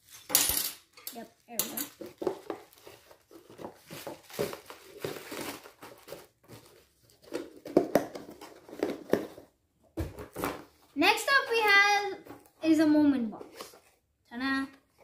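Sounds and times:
plastic bag crinkling: 0:01.4 - 0:07.4.

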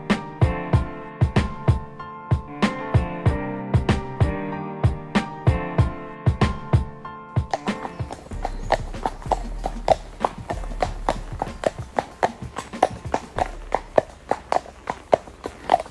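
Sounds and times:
horse hooves on tarmac: 0:07.4 - 0:15.9.

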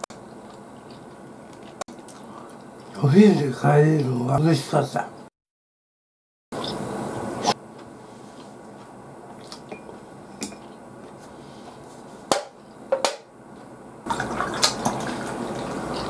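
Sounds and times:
beer pouring into a glass: 0:14.1 - 0:16.0.

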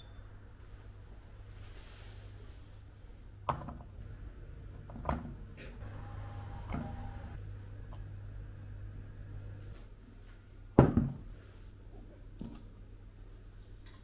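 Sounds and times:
low steady hum: 0:00.0 - 0:14.0.

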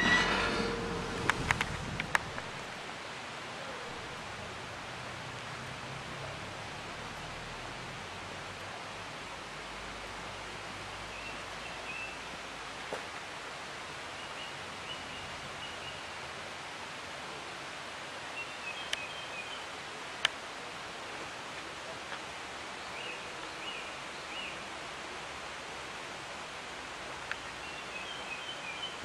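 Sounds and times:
outdoor background hiss: 0:00.0 - 0:29.0
small birds chirping: 0:18.4 - 0:19.7.

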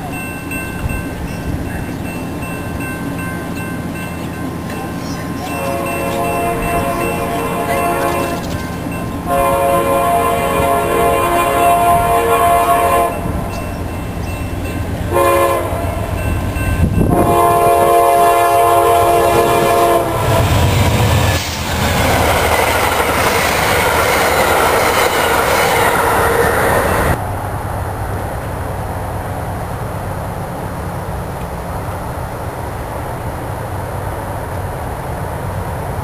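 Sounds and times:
train passing rumble: 0:00.0 - 0:36.0
locomotive air horn blasts: 0:05.4 - 0:08.6, 0:09.2 - 0:13.4, 0:15.1 - 0:16.2, 0:17.0 - 0:20.6.

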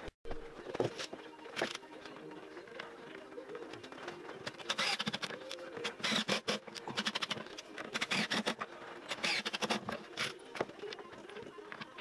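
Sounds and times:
cordless drill driving screws: 0:06.0 - 0:07.3, 0:08.0 - 0:10.3.

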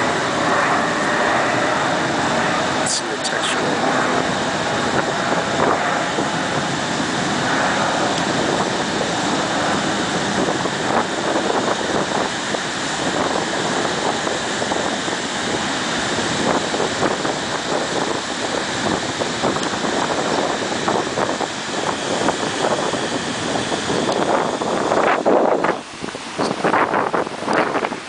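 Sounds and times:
ocean surf: 0:00.0 - 0:19.0
wind buffeting microphone: 0:00.0 - 0:28.0.

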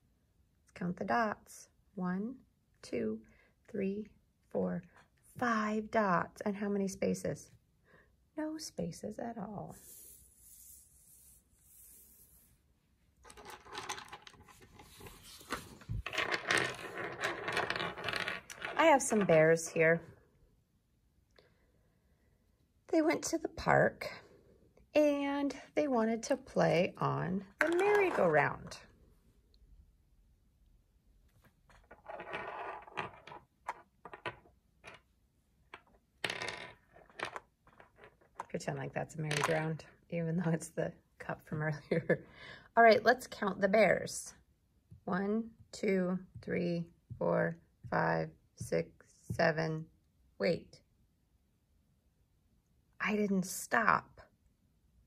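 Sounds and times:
plastic toys clattering on table: 0:13.2 - 0:14.7, 0:31.7 - 0:35.0.

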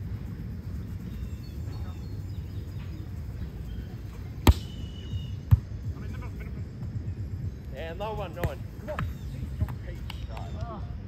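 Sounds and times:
low background rumble: 0:00.0 - 0:11.0
hand slapping a volleyball: 0:04.4 - 0:04.7.

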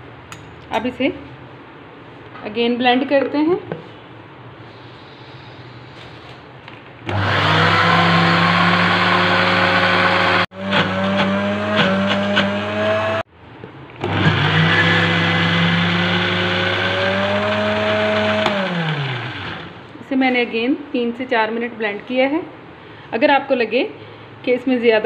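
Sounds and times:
blender motor pureeing: 0:07.1 - 0:13.2, 0:14.0 - 0:19.8.

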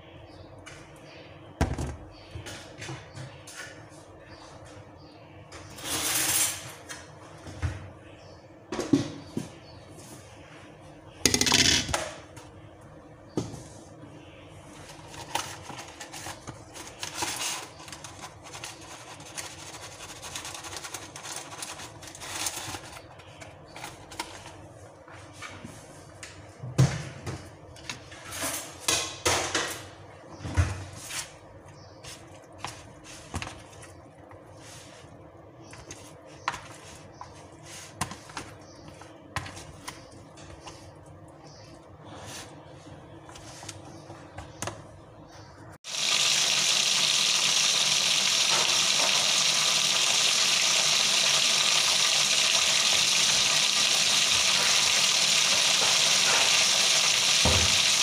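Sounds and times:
seasoning shaken from cardboard box: 0:15.1 - 0:23.1, 0:45.9 - 0:58.0.

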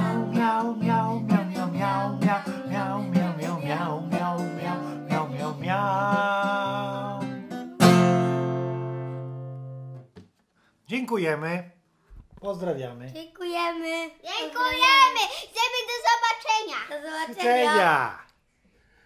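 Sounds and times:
man singing: 0:00.0 - 0:08.0
acoustic guitar strumming: 0:00.0 - 0:10.1.

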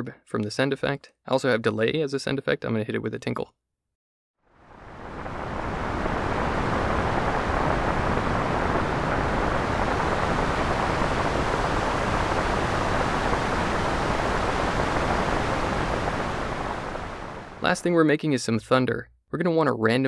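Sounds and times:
synthesized rain hiss: 0:04.5 - 0:17.9.

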